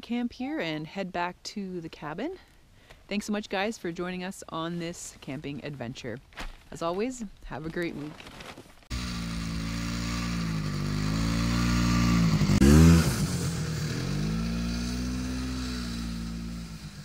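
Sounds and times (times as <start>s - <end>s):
snowmobile engine revving: 8.9s - 17.0s.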